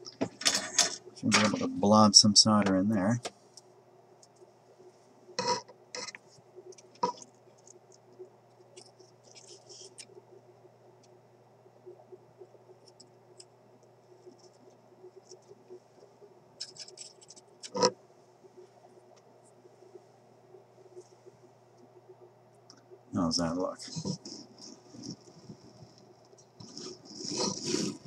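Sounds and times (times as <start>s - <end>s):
steady low hum: 0.0s - 28.0s
soldering iron scratching and tapping: 23.9s - 28.0s.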